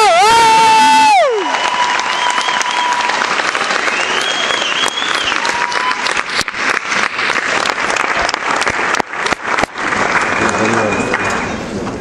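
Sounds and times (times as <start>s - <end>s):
audience applauding: 0.7s - 11.6s
high whistle: 3.8s - 5.8s, 10.2s - 11.5s.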